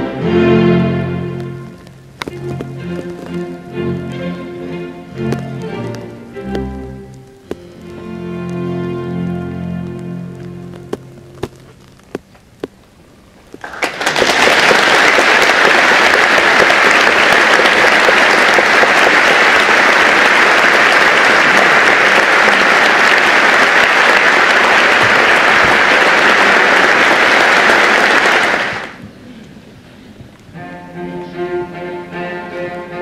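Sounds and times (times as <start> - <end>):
audience applauding: 13.6 - 29.0.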